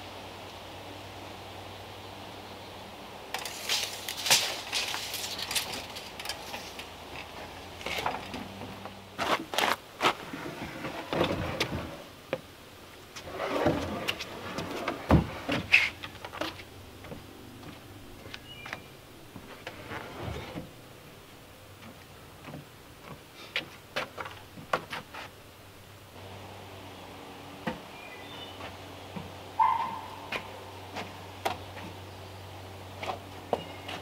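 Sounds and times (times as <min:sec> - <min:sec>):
rustling: 0:03.3 - 0:12.1, 0:13.0 - 0:20.8
footsteps on wooden boards: 0:03.8 - 0:12.5, 0:13.8 - 0:20.8, 0:21.7 - 0:25.4.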